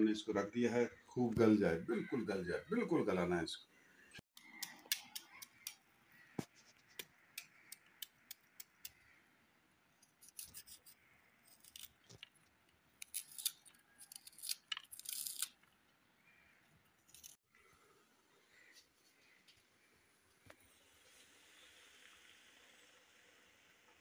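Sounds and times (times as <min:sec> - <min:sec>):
onion skin crackling: 0:10.0 - 0:15.8.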